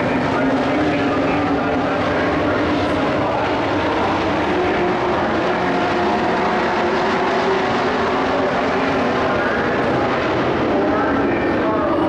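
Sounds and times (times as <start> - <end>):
racing truck engines: 0.0 - 12.0.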